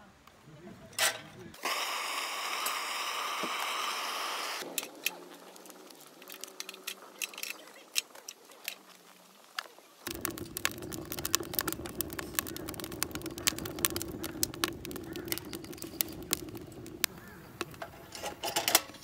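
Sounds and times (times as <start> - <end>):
wood fire crackling: 4.6 - 19.0
fire rushing: 10.1 - 19.0.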